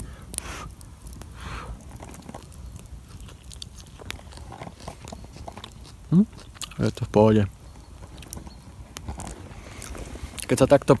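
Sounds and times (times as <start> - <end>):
quiet chewing with clicks: 0.3 - 7.1.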